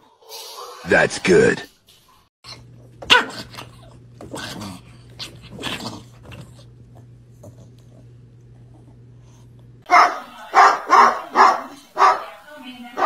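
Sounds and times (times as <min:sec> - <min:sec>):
low steady hum: 0:02.5 - 0:13.0
dog barking: 0:03.1 - 0:03.5, 0:09.9 - 0:12.4.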